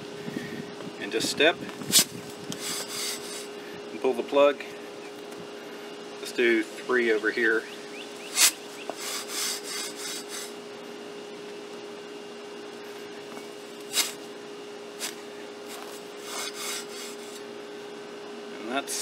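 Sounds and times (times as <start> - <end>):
steel tube scraping sandy soil: 1.9 - 3.5, 8.4 - 10.5, 13.9 - 14.2, 16.2 - 17.4.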